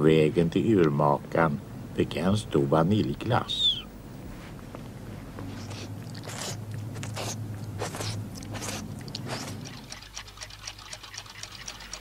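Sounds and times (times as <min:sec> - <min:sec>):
low steady hum: 0:00.0 - 0:12.0
cartoon licking and slurping: 0:05.6 - 0:12.0
clocks ticking: 0:09.4 - 0:12.0.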